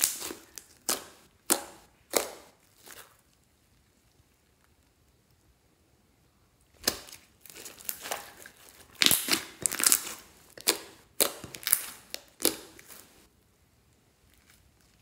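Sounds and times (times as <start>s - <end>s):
slime crackling and popping: 0.0s - 3.4s, 6.8s - 13.2s.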